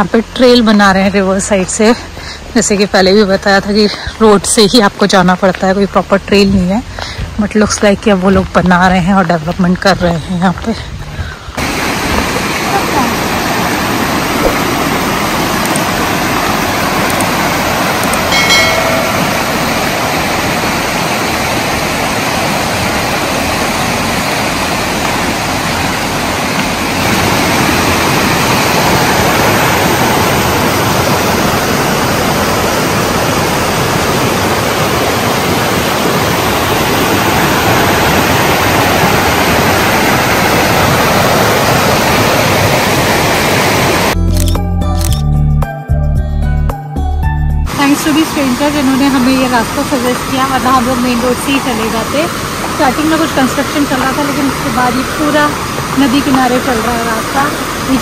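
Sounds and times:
river rushing over rocks: 11.5 - 44.2, 47.8 - 58.0.

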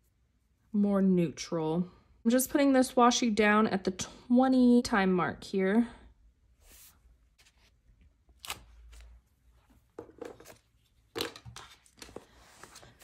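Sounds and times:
tape and paper clicks and rustles: 10.0 - 13.0.

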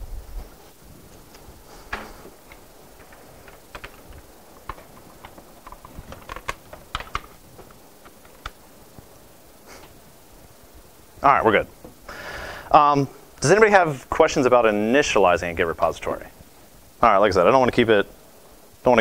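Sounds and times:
typing on laptop keyboard: 2.5 - 8.6.

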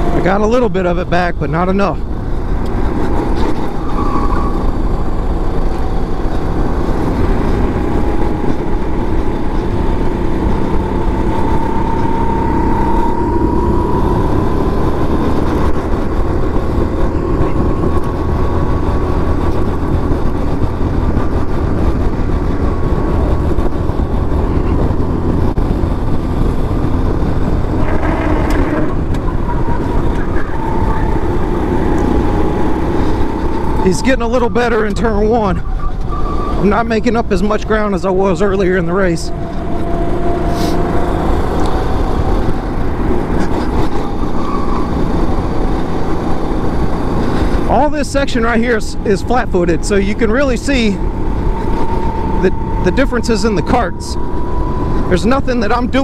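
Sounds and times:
wind and road noise: 0.0 - 56.0
go-kart engine running hard: 4.6 - 35.3, 37.9 - 48.3.

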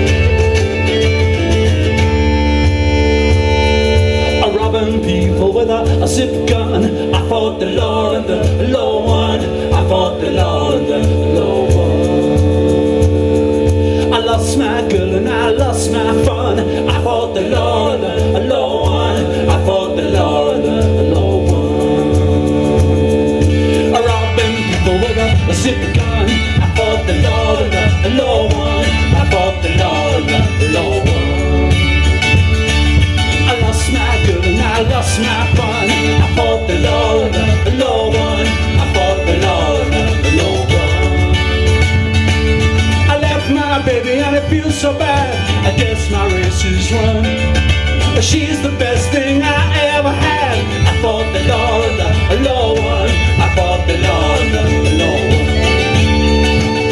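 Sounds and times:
bagpipes: 0.0 - 6.0, 53.4 - 56.9
cajon beat: 0.0 - 56.9
double bass: 0.0 - 56.9
strummed mandolin: 0.0 - 56.9.

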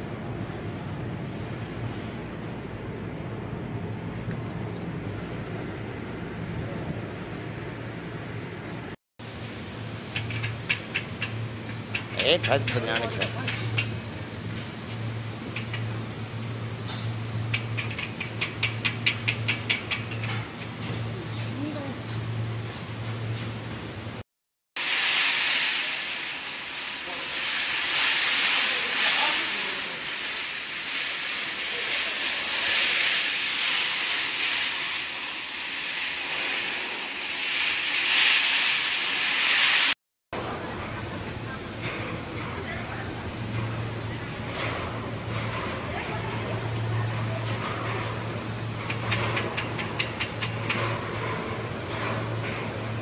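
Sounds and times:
steady rushing hiss: 9.2 - 23.1, 24.8 - 40.0.

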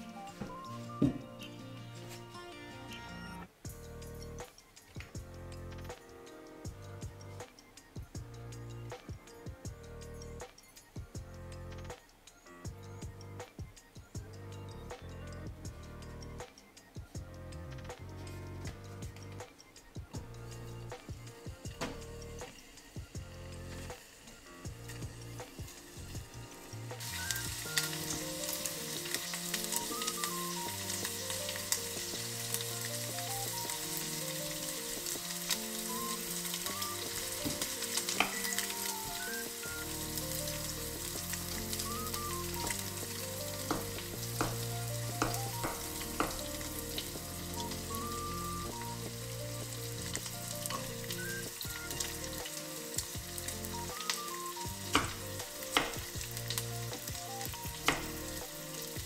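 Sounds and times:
meat sizzling in a pan: 21.1 - 59.0
knife chopping on wooden board: 43.7 - 44.6, 45.2 - 46.4, 54.9 - 55.2, 55.8 - 56.0, 57.9 - 58.1.

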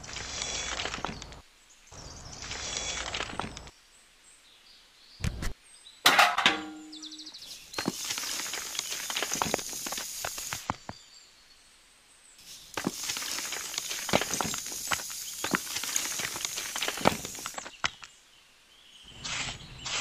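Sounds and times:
gravel pouring with rattle: 0.0 - 1.4, 2.4 - 3.7, 7.4 - 10.8, 12.4 - 18.0
stones clanking into tin pail: 6.0 - 7.2, 12.8 - 18.0
metal shovel scraping gravel: 6.1 - 7.2, 12.5 - 17.8.

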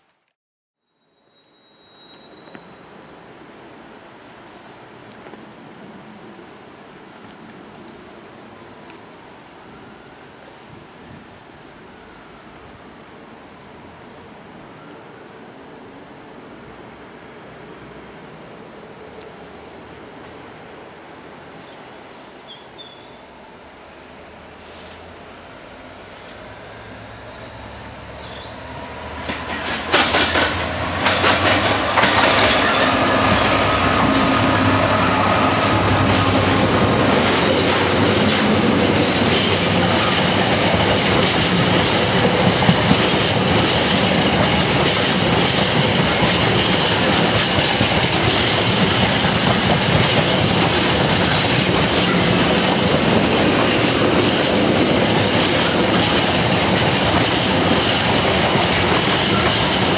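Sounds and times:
faint high wheel squeal: 0.8 - 2.9
diesel locomotive passing: 1.6 - 59.9
train wheels clattering over rail joints: 29.1 - 59.9.

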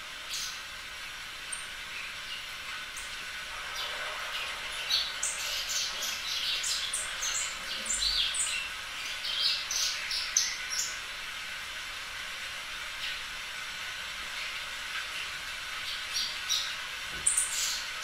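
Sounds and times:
steady background hiss: 0.0 - 18.0
small birds chirping: 4.8 - 11.0.

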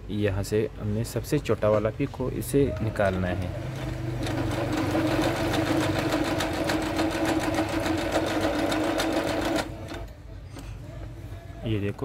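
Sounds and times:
sewing machine stitching: 3.4 - 10.1.

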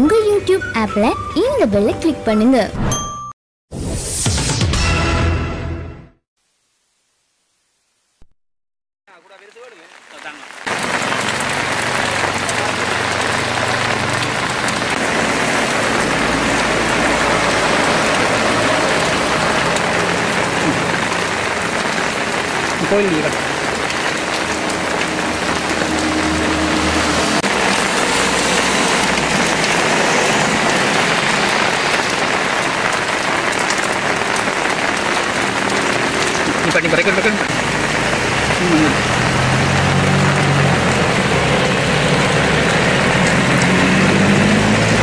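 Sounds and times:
rain splashing on standing water: 9.1 - 45.0.

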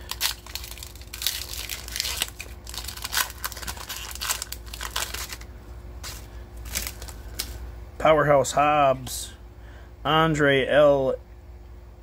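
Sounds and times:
foil wrapper crinkling: 0.0 - 7.6.

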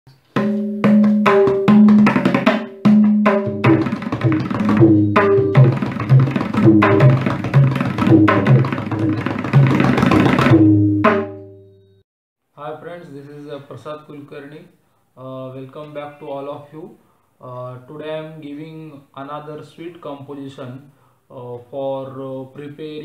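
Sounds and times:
tabla right-hand drum strokes: 0.4 - 11.6.

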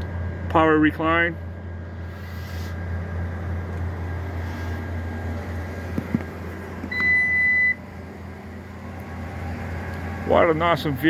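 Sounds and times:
low hum: 0.0 - 11.0
electronic beep: 6.9 - 7.8.

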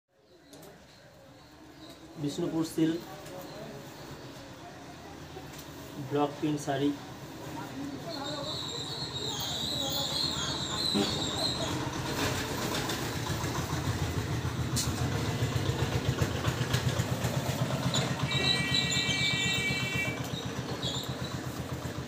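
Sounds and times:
engine idling: 10.3 - 22.0.

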